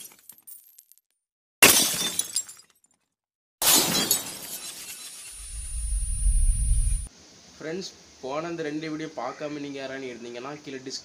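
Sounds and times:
glass shattering: 0.0s - 1.0s, 1.6s - 5.3s
low rumble: 5.4s - 7.1s.

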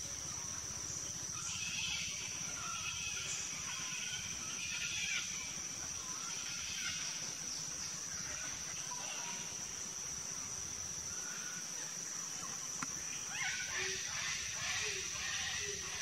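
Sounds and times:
faint bird calls: 0.0s - 16.0s
high-pitched insect drone: 0.0s - 16.0s.

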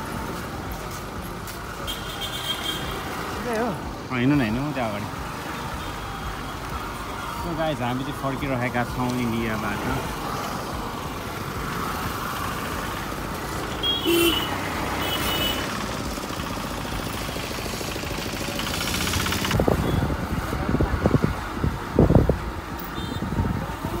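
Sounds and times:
road and wind noise: 0.0s - 24.0s
wind buffeting microphone: 19.5s - 24.0s.

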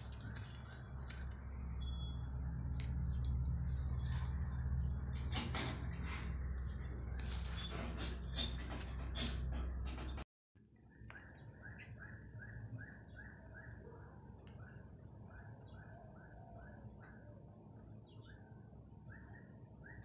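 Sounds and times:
steady low rumble: 0.0s - 7.5s
bird calling: 10.9s - 20.0s.

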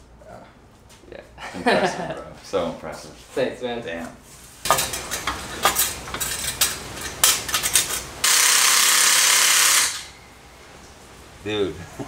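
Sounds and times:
metal tubing clanking: 4.7s - 8.1s
loud steady hiss: 7.9s - 11.8s.

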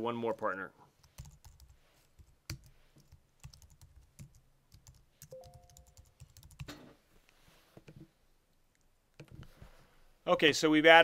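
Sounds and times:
keyboard typing: 1.0s - 6.7s.

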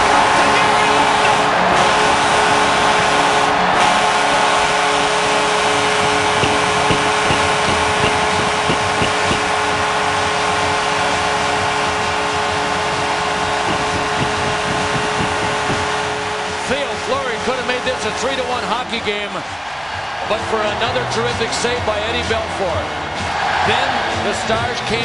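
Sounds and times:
crowd roaring: 0.0s - 21.3s, 22.9s - 24.4s.

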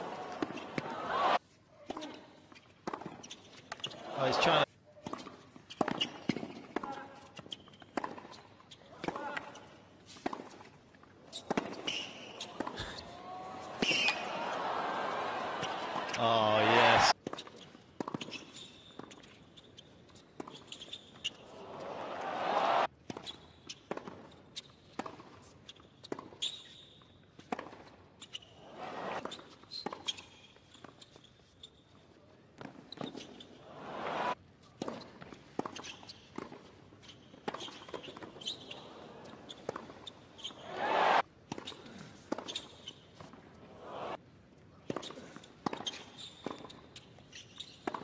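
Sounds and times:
crowd cheering: 0.0s - 1.4s, 4.0s - 4.6s, 13.2s - 17.2s, 21.5s - 22.9s, 28.7s - 29.2s, 33.7s - 34.4s, 40.6s - 41.2s, 43.7s - 44.2s.

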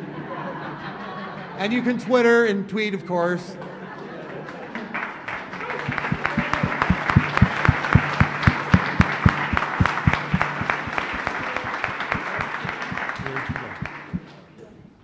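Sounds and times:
audience applauding: 4.5s - 14.4s
single claps: 5.8s - 14.4s.

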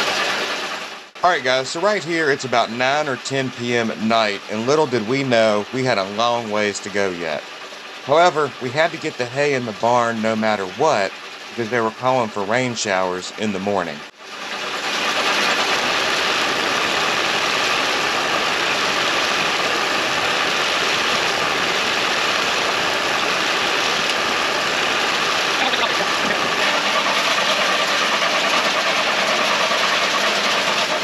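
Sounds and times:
hay elevator chain conveyor running: 0.0s - 31.0s.

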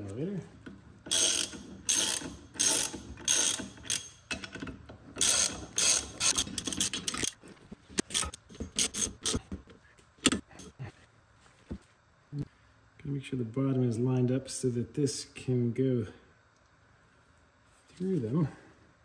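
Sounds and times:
hand ratchet clicking: 1.0s - 7.4s.

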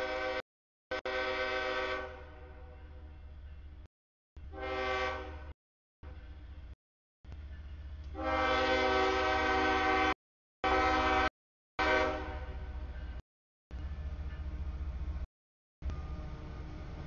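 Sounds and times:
locomotive air horn blasts: 0.0s - 2.8s, 4.5s - 5.5s, 8.1s - 12.8s
low rumble of train: 0.0s - 17.0s.

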